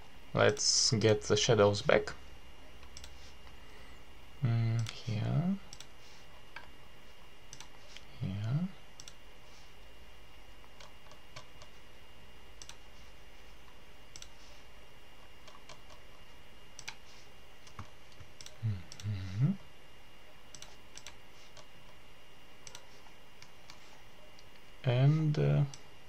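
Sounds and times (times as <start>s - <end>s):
faint high-pitched whine: 0.0s - 26.0s
computer mouse clicks: 2.8s - 3.2s, 5.7s - 6.7s, 7.5s - 8.1s, 9.0s - 9.2s, 10.7s - 11.8s, 12.6s - 12.8s, 13.6s - 14.4s, 15.4s - 16.2s, 16.8s - 17.0s, 17.6s - 19.1s, 20.5s - 22.0s, 22.6s - 23.8s
man humming: 18.6s - 19.6s.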